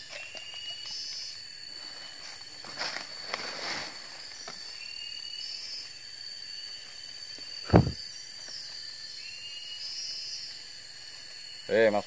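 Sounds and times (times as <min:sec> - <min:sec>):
high-pitched insect drone: 0:00.0 - 0:12.0
loud thump: 0:07.7 - 0:08.0.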